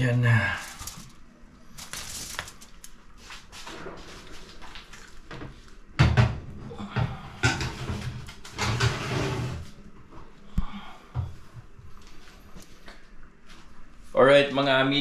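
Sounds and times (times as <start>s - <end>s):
foil rustling: 0.0s - 5.3s.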